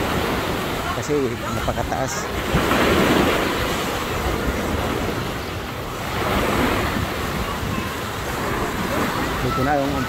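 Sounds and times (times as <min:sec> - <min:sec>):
surf washing onto beach: 0:00.0 - 0:10.0
wind on microphone: 0:01.4 - 0:10.0.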